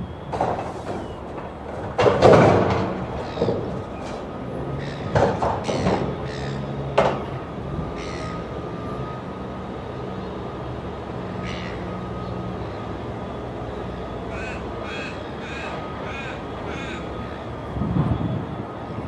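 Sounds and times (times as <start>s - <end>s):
distant diesel locomotive hum: 0.0s - 19.0s
crow cawing: 4.8s - 6.7s, 7.9s - 8.4s, 11.4s - 12.0s, 14.3s - 17.4s.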